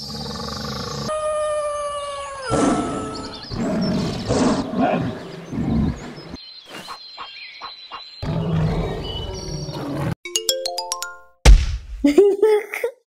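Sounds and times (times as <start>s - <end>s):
loud roars and growls: 2.5s - 6.4s.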